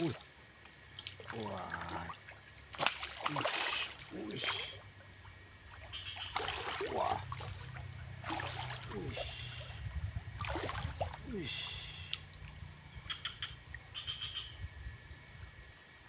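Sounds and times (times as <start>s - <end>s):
high insect drone: 0.0s - 16.0s
fish splashing at surface: 1.2s - 4.8s, 5.8s - 12.6s.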